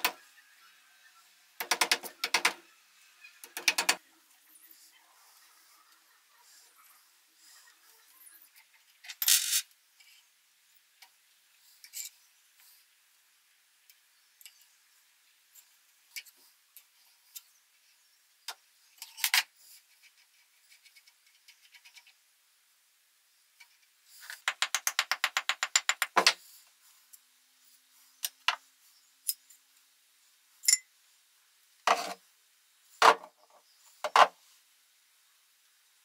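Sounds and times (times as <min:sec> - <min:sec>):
metal parts and tools clicking: 0:09.0 - 0:10.2, 0:30.6 - 0:30.9.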